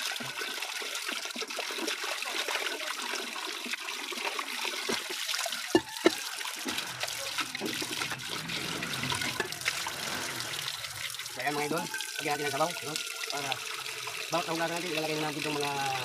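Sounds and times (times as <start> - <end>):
tap water running into metal pot: 0.0 - 16.0
pot being scrubbed by hand: 5.0 - 11.2.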